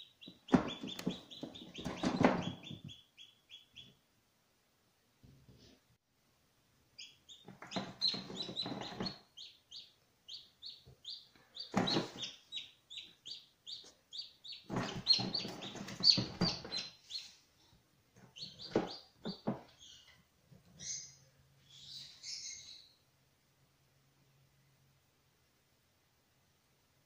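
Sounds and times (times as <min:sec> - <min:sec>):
chicks peeping: 0:00.0 - 0:04.0, 0:07.0 - 0:17.5, 0:18.2 - 0:22.9.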